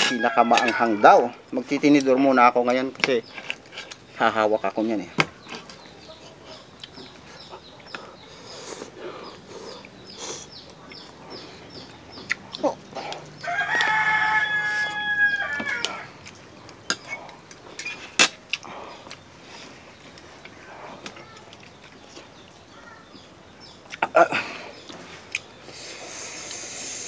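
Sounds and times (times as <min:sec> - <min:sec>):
rooster crowing: 0:00.0 - 0:01.4, 0:13.4 - 0:16.1.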